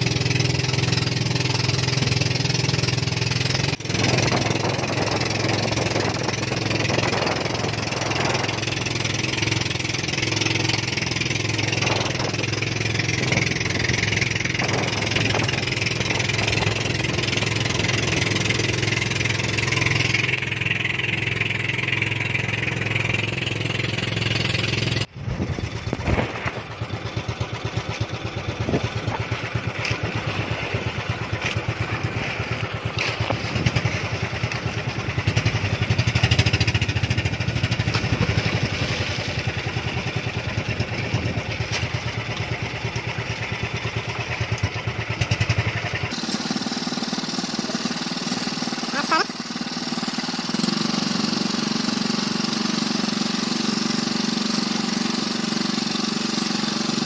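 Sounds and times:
small engine running: 0:00.0 - 0:57.0.

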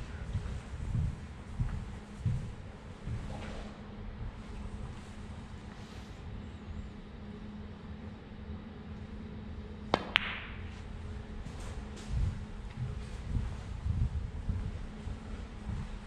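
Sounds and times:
steady low hum: 0:00.0 - 0:16.0
sharp click of balls colliding: 0:09.9 - 0:10.7
cue tip striking ball: 0:09.9 - 0:10.8.

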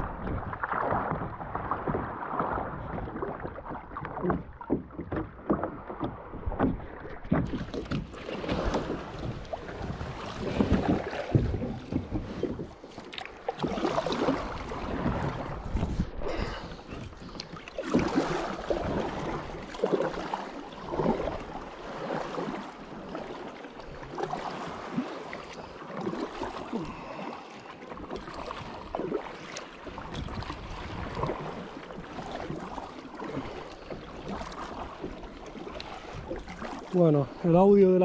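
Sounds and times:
wind rumbling on microphone: 0:00.0 - 0:12.8, 0:13.6 - 0:17.3, 0:30.0 - 0:31.6
water splashing and sloshing: 0:00.0 - 0:38.0.

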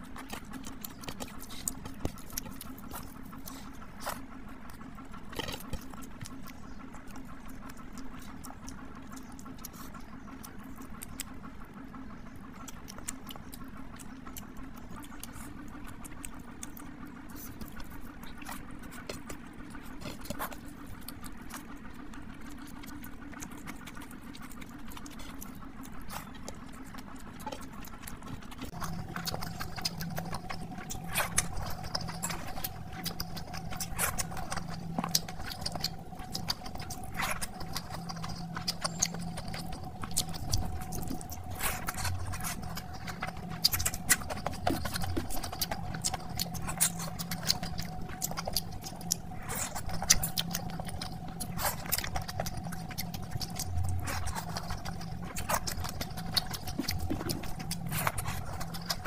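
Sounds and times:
steady low hum: 0:00.0 - 0:59.0
wet chewing and lip smacking: 0:00.0 - 0:59.0.

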